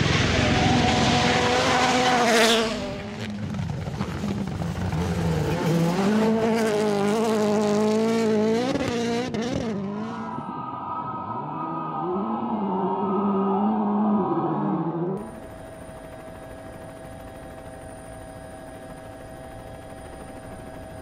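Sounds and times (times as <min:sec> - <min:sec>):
rally car engines revving: 0:00.0 - 0:10.6.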